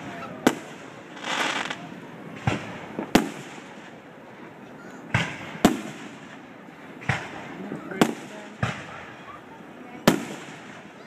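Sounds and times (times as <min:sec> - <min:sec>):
hissing crackle: 0:00.5 - 0:02.0
firework shells bursting: 0:00.5 - 0:03.9.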